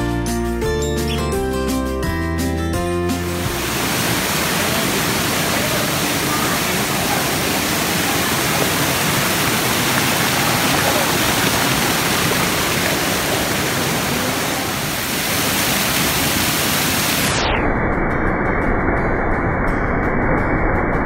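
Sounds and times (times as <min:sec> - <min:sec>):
waterfall rushing: 0:03.2 - 0:17.5.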